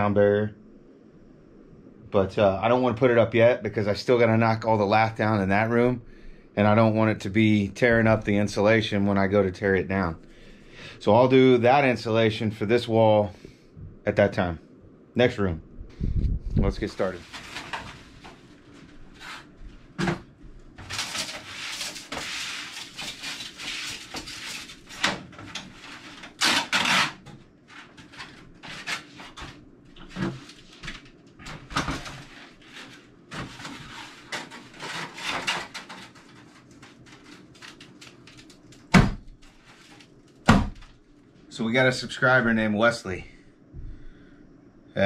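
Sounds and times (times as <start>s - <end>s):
knocks scrapes and clatters: 17.0s - 20.2s, 20.8s - 38.5s.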